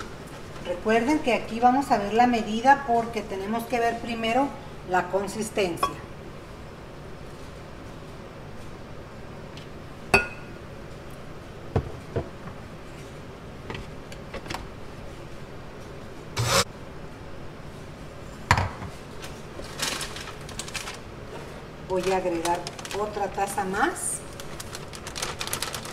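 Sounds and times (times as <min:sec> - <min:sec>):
utensils and dishes scraping: 0:16.4 - 0:16.7.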